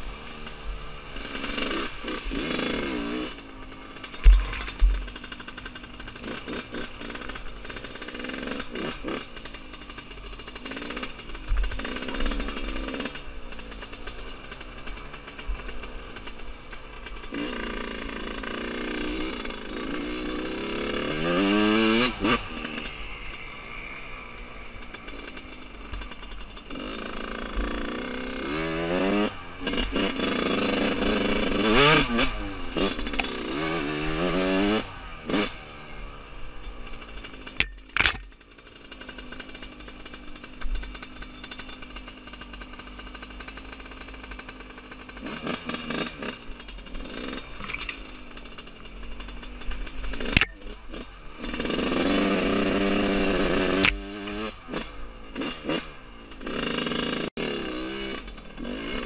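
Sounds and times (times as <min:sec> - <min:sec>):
two-stroke motorcycle engine revving: 0:00.0 - 0:59.0.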